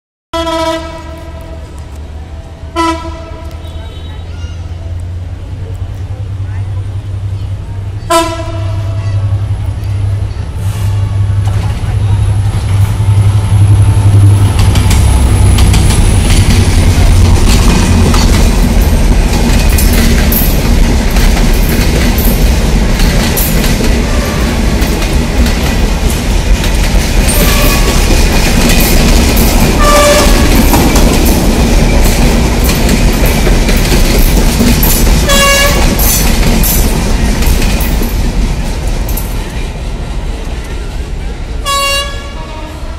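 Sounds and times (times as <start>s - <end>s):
train horn toots: 0.4s - 1.8s, 2.7s - 4.8s, 8.1s - 9.3s, 24.0s - 24.6s, 27.3s - 28.1s, 29.8s - 30.7s, 35.3s - 36.1s, 41.6s - 42.9s
train rumbling past: 0.4s - 42.9s
wheels clattering over rail joints: 14.4s - 40.9s.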